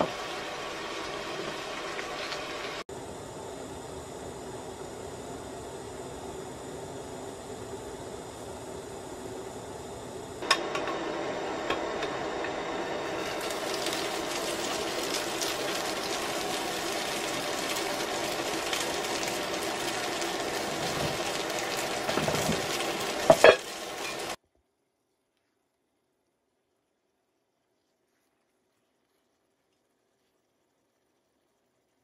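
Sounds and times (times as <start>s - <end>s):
food sizzling in a pan: 0.0s - 2.9s, 10.4s - 24.4s.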